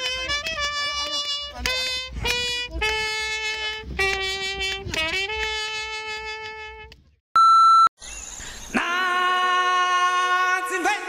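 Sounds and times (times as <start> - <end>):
short electronic beep: 7.4 - 7.9.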